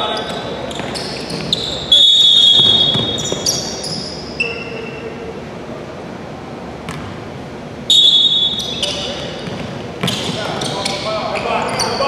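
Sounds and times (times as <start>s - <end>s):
shoes squeaking on hardwood: 0.0s - 4.8s
ball bouncing: 2.5s - 3.6s.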